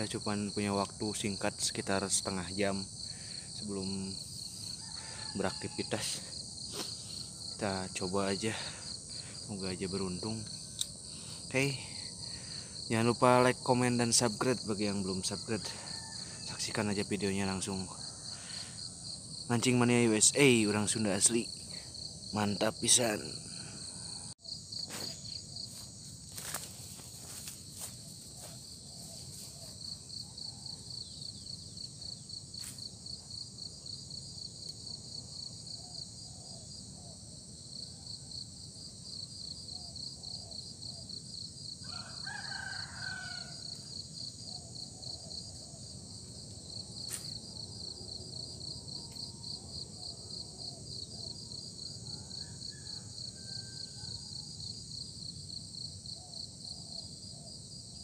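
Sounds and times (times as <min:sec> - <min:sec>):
insects chirring: 0:00.0 - 0:58.0
rooster crowing: 0:04.4 - 0:06.4, 0:15.6 - 0:16.7, 0:41.8 - 0:44.0, 0:51.9 - 0:54.6.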